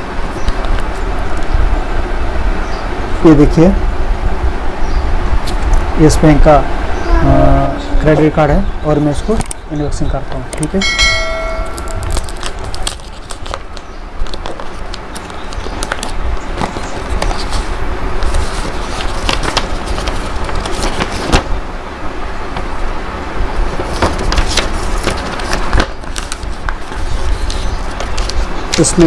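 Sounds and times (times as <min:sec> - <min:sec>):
paper crackling and rustling: 0:11.7 - 0:21.6, 0:23.5 - 0:29.0
envelope tearing: 0:11.8 - 0:21.5, 0:23.7 - 0:28.9.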